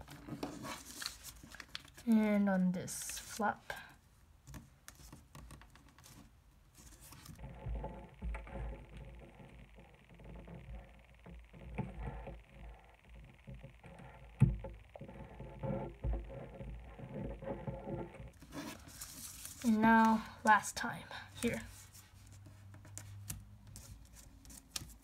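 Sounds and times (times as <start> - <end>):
paper rustling and crinkling: 0.0 - 2.1, 18.4 - 20.2.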